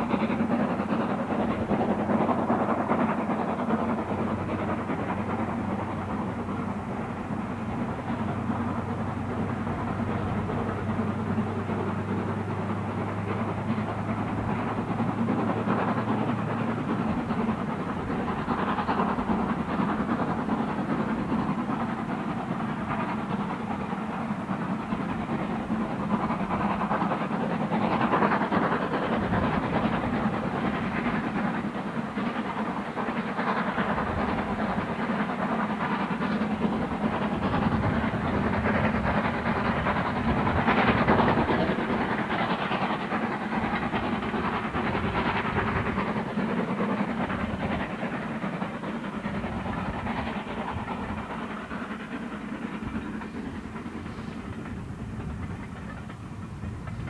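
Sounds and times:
steam locomotive passing: 0.0 - 57.0.

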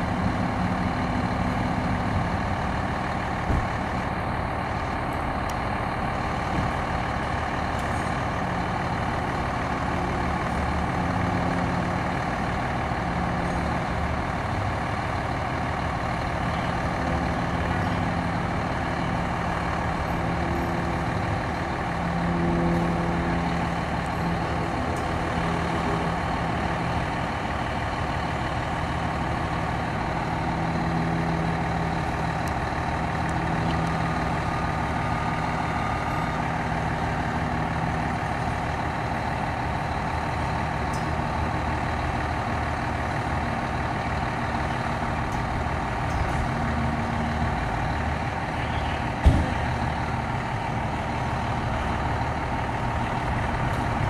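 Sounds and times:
diesel engine idling: 0.0 - 54.0
sharp thump: 49.2 - 49.6.

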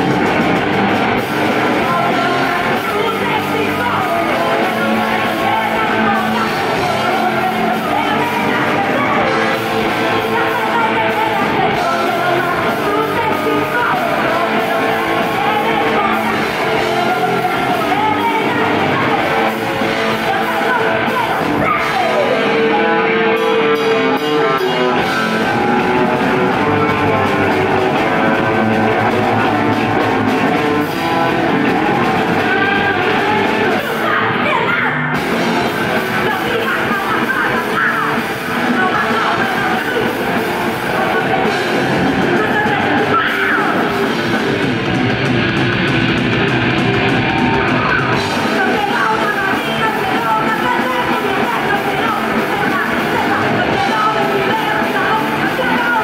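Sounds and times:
drums: 0.0 - 56.0
electric bass: 0.0 - 56.0
electric guitar: 0.0 - 56.0
woman singing into a microphone: 1.4 - 23.0, 35.9 - 44.0, 48.2 - 56.0.

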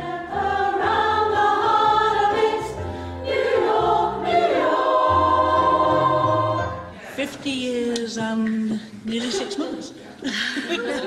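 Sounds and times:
women's choir singing: 0.0 - 7.2.

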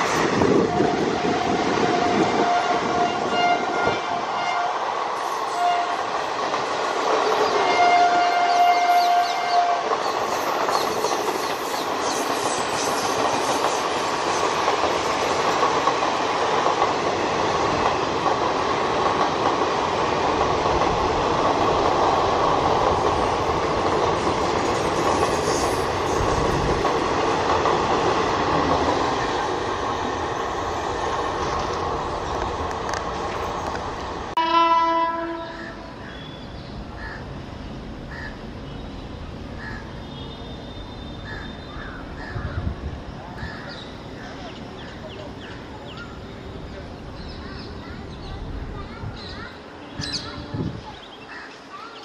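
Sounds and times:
train wheels rumbling on rails: 0.0 - 52.0
locomotive horn: 0.5 - 4.8, 5.5 - 6.1, 7.5 - 9.9, 34.4 - 35.8.

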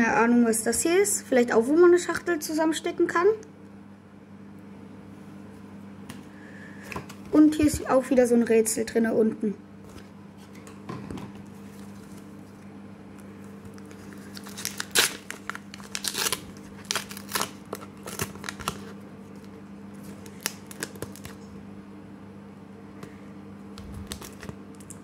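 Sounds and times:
faint steady hum: 0.0 - 25.0
wrapper tearing and crinkling: 13.7 - 21.4, 23.9 - 25.0.

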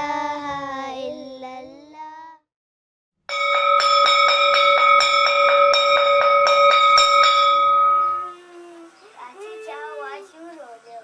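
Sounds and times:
metal bell struck and ringing: 3.3 - 8.4.

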